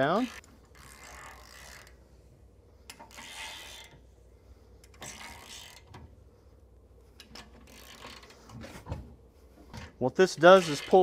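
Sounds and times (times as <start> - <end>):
torque wrench ratchet clicking: 4.9 - 6.0.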